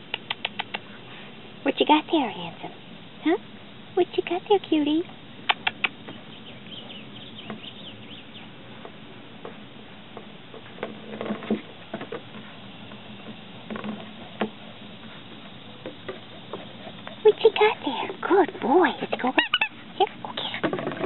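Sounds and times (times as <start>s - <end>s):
scrapes on wooden deck: 8.8s - 17.2s.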